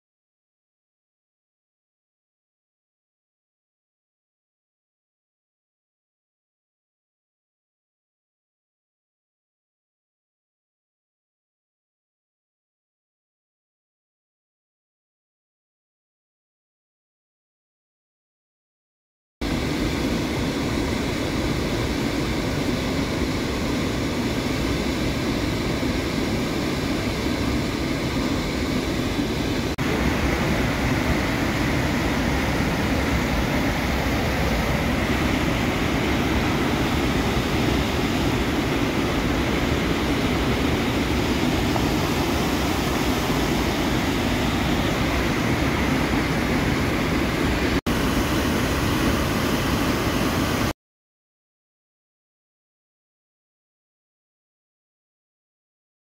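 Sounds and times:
waterfall roaring: 0:19.5 - 0:50.7.

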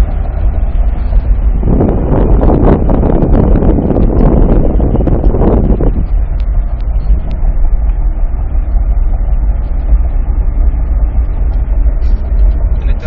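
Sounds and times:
rush of air: 0:00.0 - 0:07.8
road and engine rumble in cabin: 0:00.0 - 0:13.0.

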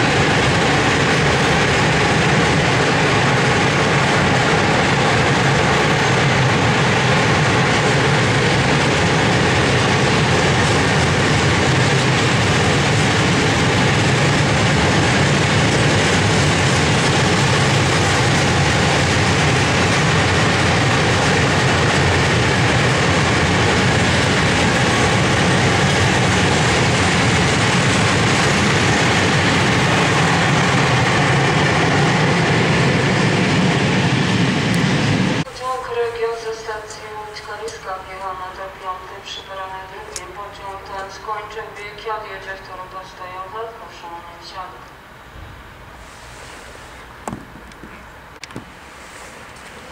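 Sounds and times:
freight train wheels rattling: 0:00.0 - 0:35.5.

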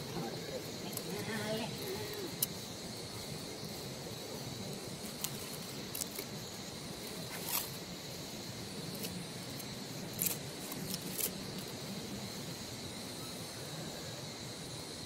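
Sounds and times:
sharp crackles and rustles: 0:00.0 - 0:12.0
high-pitched insect drone: 0:00.0 - 0:15.0.

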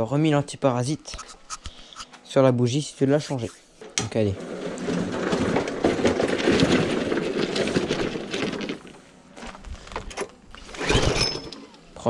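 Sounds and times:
lawn mower rattling over gravel: 0:04.2 - 0:09.6, 0:10.6 - 0:11.8.

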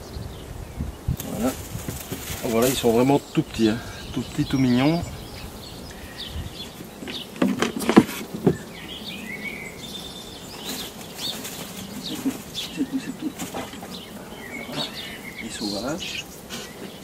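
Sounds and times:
small birds chirping: 0:00.0 - 0:17.0
rustling: 0:01.2 - 0:03.6, 0:04.4 - 0:17.0
knocks and rattles on hutch: 0:06.8 - 0:08.6.

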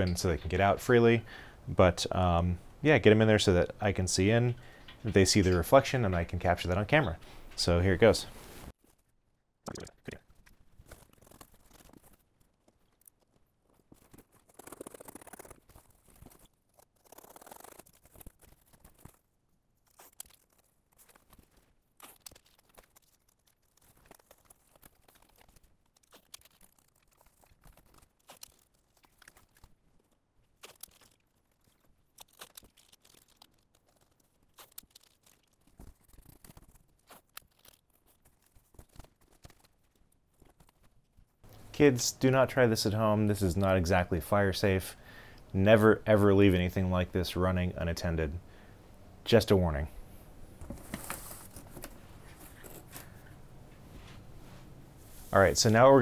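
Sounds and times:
tape tearing: 0:10.3 - 0:40.9, 0:50.6 - 0:53.4
cardboard rustling: 0:50.5 - 0:56.0.

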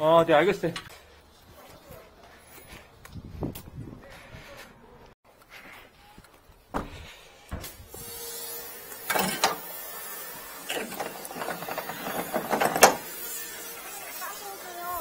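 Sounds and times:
latch clicks: 0:10.8 - 0:13.0
truck door clunks and rattles: 0:11.5 - 0:13.0.

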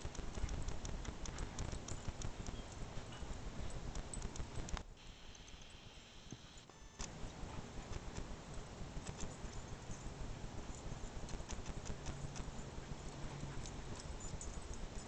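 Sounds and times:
low steady hum: 0:00.0 - 0:15.0.

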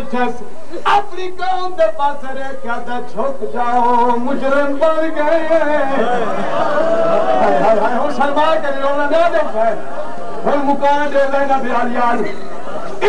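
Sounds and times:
man chanting a mournful melody: 0:00.0 - 0:06.4.

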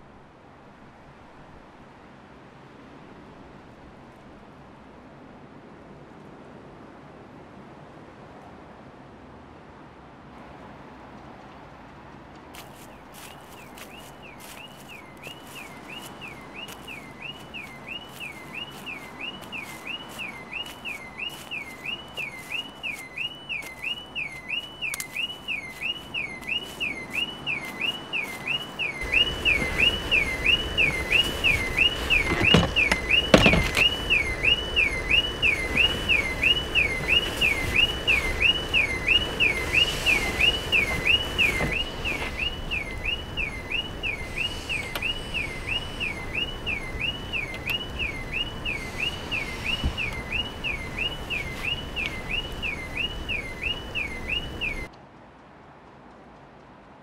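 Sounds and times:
car alarm siren wailing: 0:13.1 - 0:54.9.

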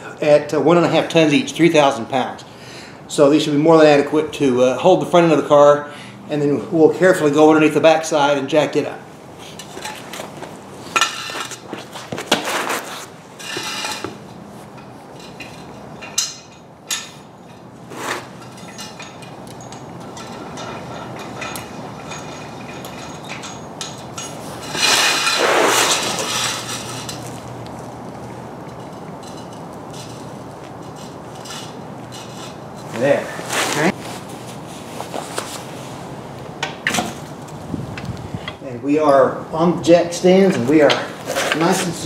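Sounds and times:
metal jack stands clanking: 0:09.5 - 0:12.4, 0:13.4 - 0:27.6, 0:40.3 - 0:42.0.

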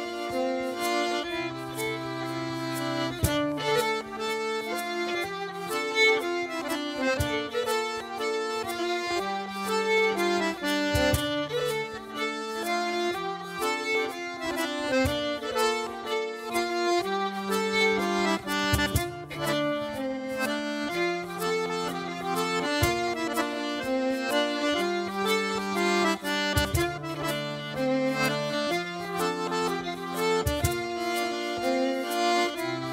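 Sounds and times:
accordion dance tune: 0:00.0 - 0:32.9.

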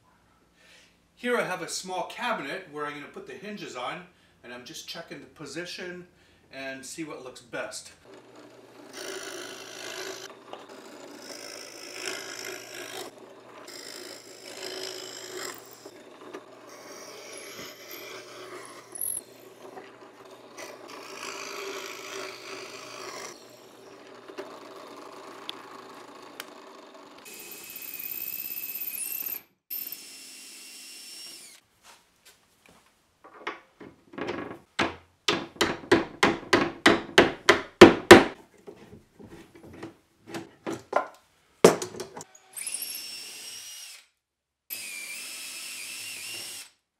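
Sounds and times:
drill press boring wood: 0:08.0 - 0:31.6, 0:42.3 - 0:44.1, 0:44.7 - 0:46.8.

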